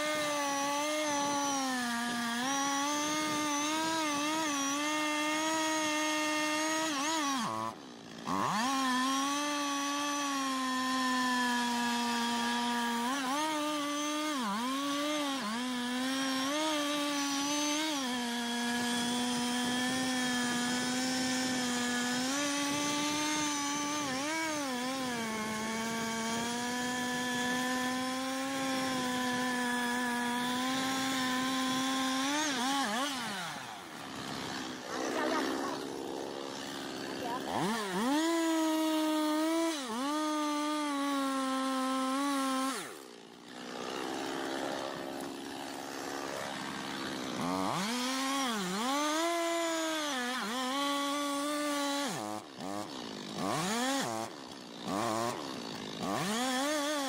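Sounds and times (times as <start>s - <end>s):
chainsaw cutting into tree trunk: 0.0s - 57.0s.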